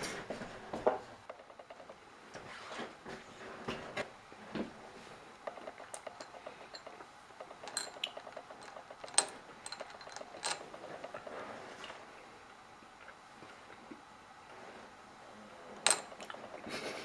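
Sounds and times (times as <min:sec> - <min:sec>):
jelly beans clinking on glass dish: 0:05.5 - 0:11.3.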